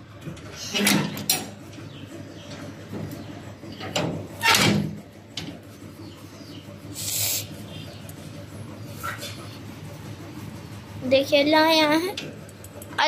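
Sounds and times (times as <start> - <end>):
iron grille door clanking: 0.3 - 1.6, 3.8 - 5.5
short hissing scrape: 6.9 - 7.6.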